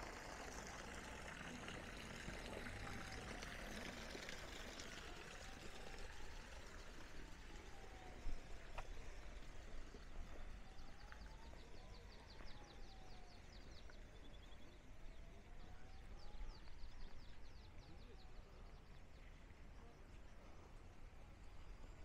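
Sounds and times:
faint falling and rising tone: 0:00.0 - 0:19.6.

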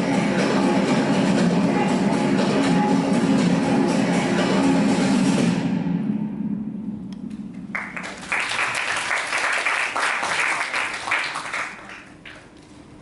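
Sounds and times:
audience applauding: 0:07.7 - 0:12.5.

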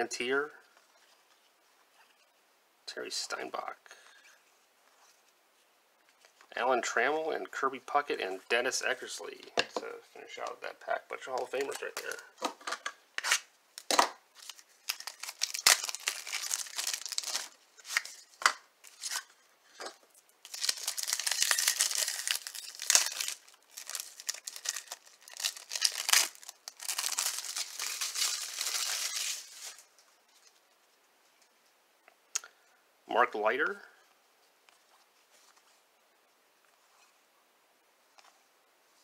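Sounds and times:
card pack wrapper tearing: 0:13.2 - 0:19.3, 0:20.4 - 0:29.8.

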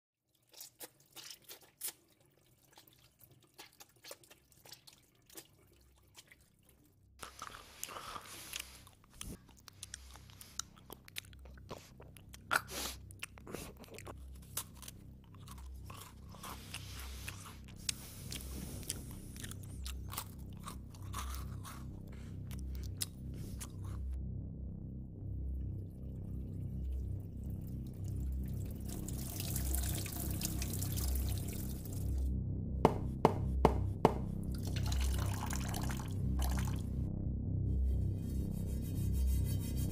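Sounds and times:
crunching and chewing: 0:00.3 - 0:24.2
low rumble: 0:15.0 - 0:39.9.

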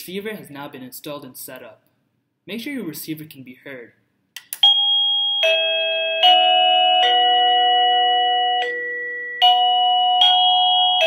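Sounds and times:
electronic doorbell melody: 0:04.6 - 0:11.0.

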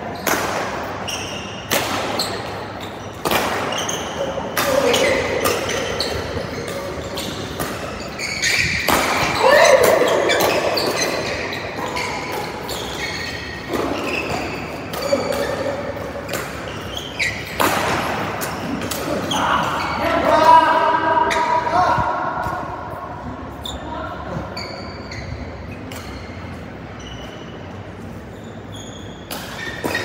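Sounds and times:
shoes squeaking on court floor: 0:00.0 - 0:20.5, 0:21.2 - 0:21.7, 0:22.4 - 0:30.0
rackets hitting shuttlecock: 0:00.1 - 0:19.3.

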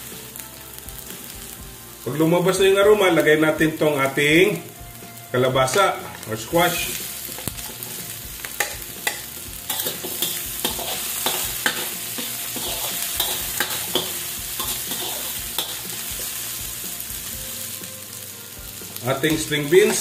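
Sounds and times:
food sizzling in oil: 0:00.0 - 0:20.0
metal spatula scraping a wok: 0:05.6 - 0:17.8.

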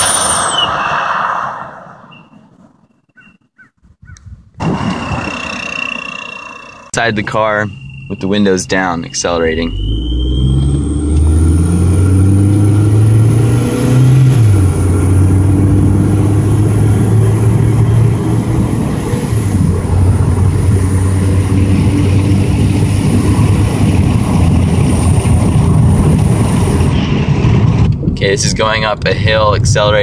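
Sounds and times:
thin high exhaust whistle: 0:07.0 - 0:11.4
car engine accelerating hard: 0:09.4 - 0:27.9.

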